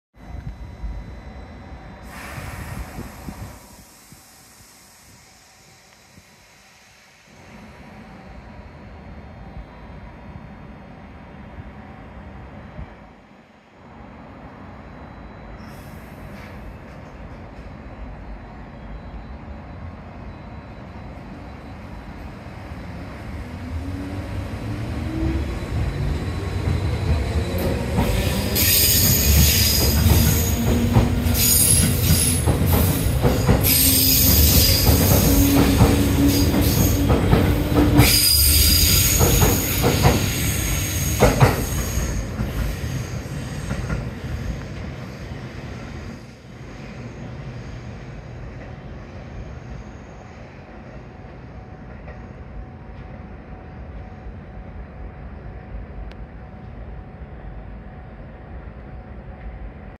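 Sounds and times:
train rumble: 15.1 - 60.0
wheel squeal: 38.0 - 44.7.

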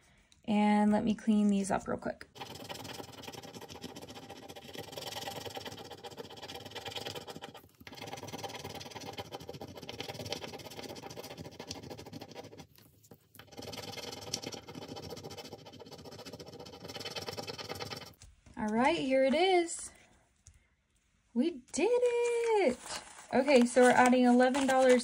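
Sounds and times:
fingernails scratching paper card: 2.4 - 18.2, 23.5 - 25.0.

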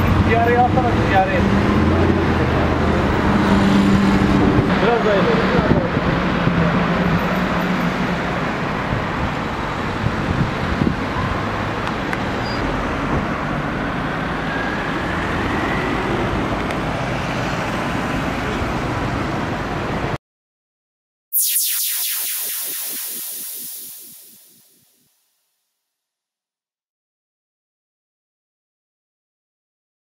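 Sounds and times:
street traffic noise: 0.0 - 20.2.

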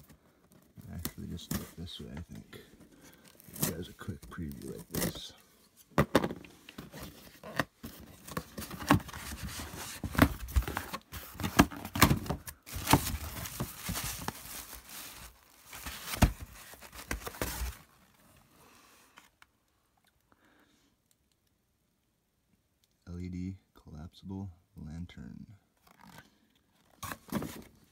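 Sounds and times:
cardboard ripping and scraping: 3.4 - 5.3, 6.9 - 17.9
plastic packaging crinkling: 12.5 - 17.8.

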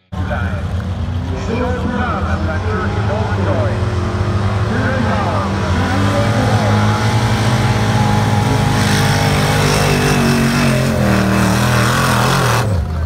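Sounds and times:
truck engine under heavy load: 0.0 - 13.0.

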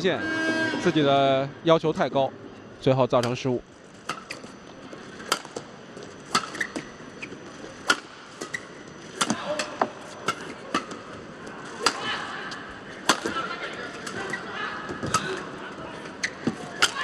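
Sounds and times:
indoor arena hum: 0.0 - 17.0
court shoes squeaking: 3.9 - 17.0.

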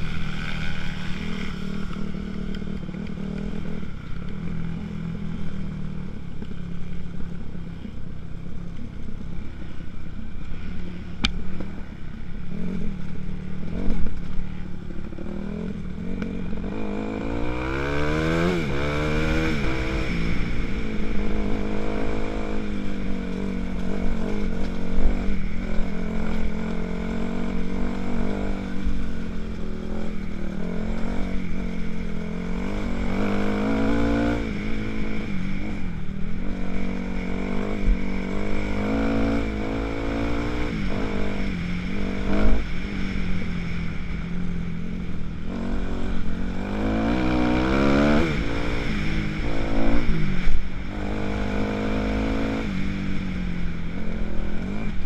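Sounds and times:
motorcycle engine revving: 0.0 - 8.0, 8.7 - 55.0.

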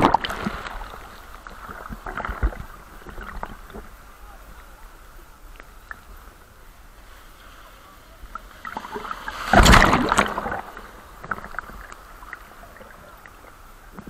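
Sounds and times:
surf hiss: 0.0 - 14.0
sea wave crashing on shore: 7.2 - 11.2.

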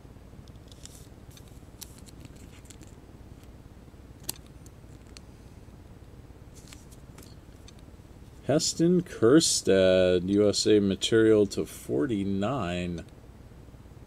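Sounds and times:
low steady hum: 0.0 - 14.0
trading cards clicking and rustling: 0.6 - 3.0.

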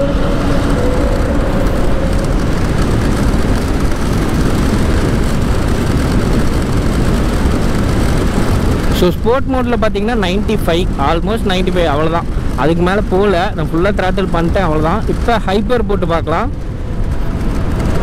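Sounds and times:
wind rush on microphone: 0.0 - 18.0.

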